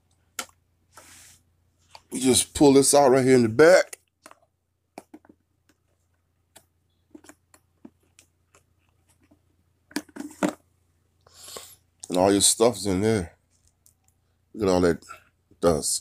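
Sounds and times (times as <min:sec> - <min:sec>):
plastic clicks and knocks: 0:03.9 - 0:05.9, 0:06.5 - 0:10.6.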